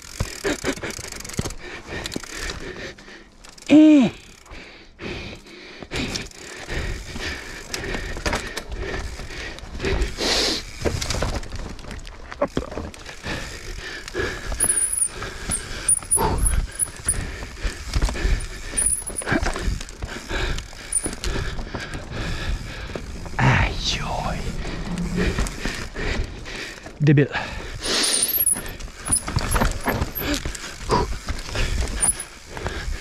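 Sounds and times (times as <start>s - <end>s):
bike tyres rolling over dirt: 0.0s - 4.6s, 5.3s - 23.4s, 24.4s - 33.0s
bike frame rattling: 6.0s - 23.4s, 24.5s - 33.0s.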